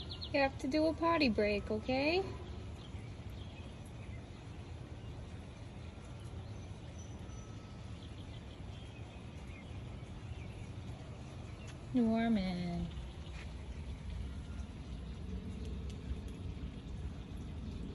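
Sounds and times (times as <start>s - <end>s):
light rain hiss: 0.0s - 17.9s
low rumble: 10.5s - 17.9s.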